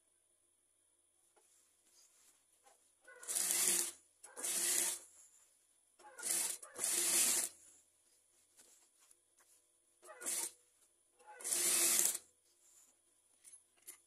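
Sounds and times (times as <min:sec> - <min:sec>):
industrial sewing machine stitching: 0:03.2 - 0:05.0, 0:06.2 - 0:07.6, 0:10.2 - 0:10.6, 0:11.4 - 0:12.2.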